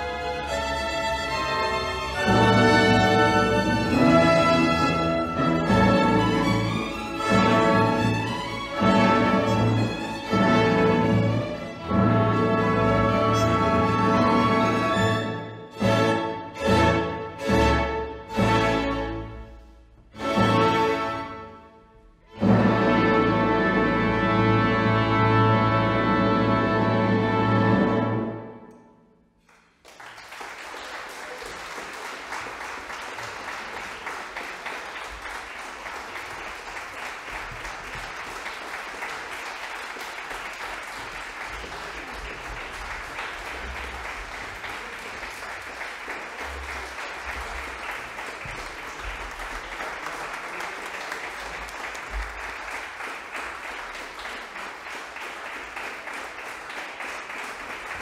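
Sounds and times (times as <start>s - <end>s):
audience applauding: 29.4s - 58.0s.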